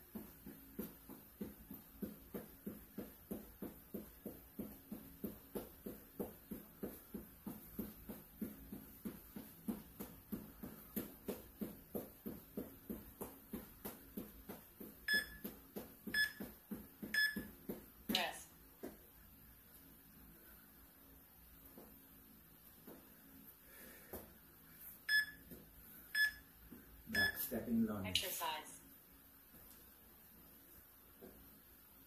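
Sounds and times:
footsteps jogging on hard floor: 0.0 - 19.0
timer beeps: 15.0 - 15.5, 16.1 - 16.5, 17.1 - 17.5, 25.1 - 25.4, 26.2 - 26.5, 27.1 - 27.5.

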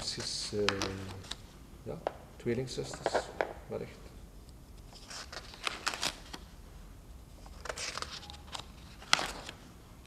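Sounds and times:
sketchbook pages rustling: 7.4 - 9.6.

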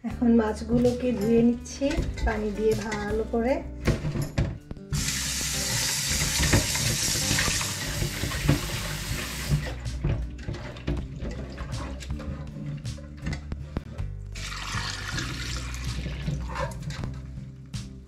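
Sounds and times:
water splashes and knocks: 3.8 - 17.4
tap running into sink: 3.9 - 12.3.

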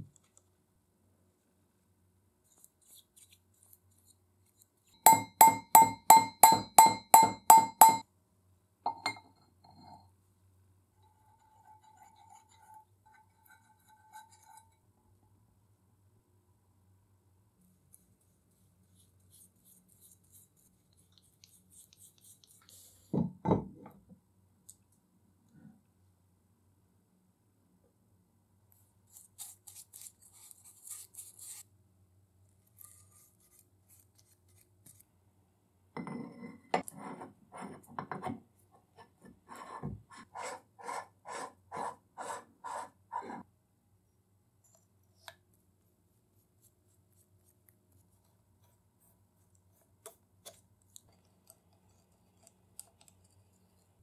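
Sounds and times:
rasping metal-on-metal strokes: 11.1 - 14.8.

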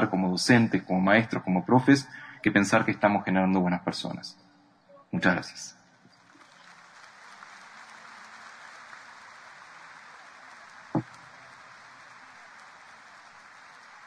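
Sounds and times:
audience applauding: 6.1 - 14.0
thump: 11.0 - 11.2.

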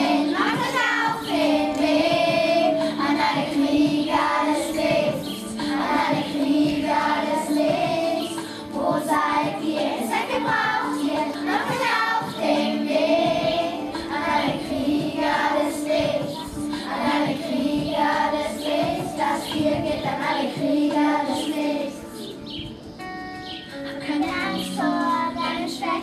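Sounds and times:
children singing: 0.0 - 22.2.

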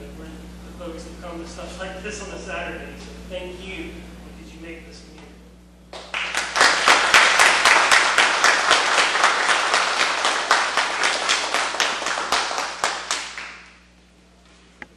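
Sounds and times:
loud sharp claps: 5.9 - 13.8
audience applauding: 6.0 - 13.7.

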